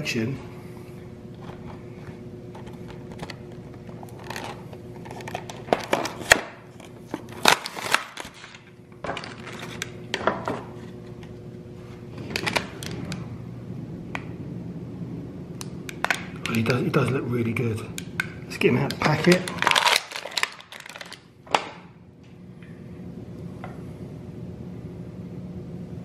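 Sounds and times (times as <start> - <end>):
plastic packaging crackling: 2.6 - 6.5, 7.3 - 10.0, 19.0 - 21.3.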